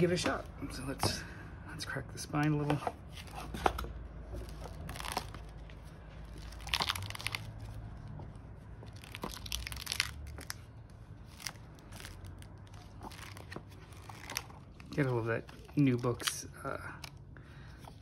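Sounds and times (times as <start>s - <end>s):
book spine crackling: 3.1s - 17.2s.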